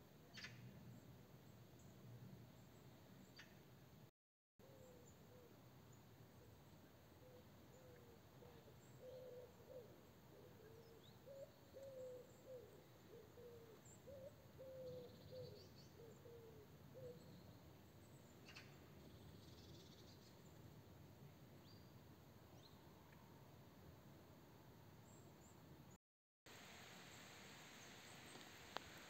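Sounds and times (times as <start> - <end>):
bird cooing: 4.6 - 5.6, 7.2 - 17.3.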